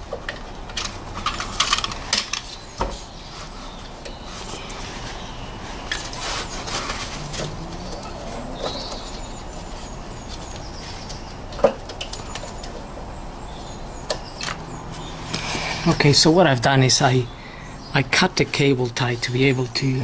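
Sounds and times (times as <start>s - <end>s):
light rustling of wiring: 0.3s - 12.9s.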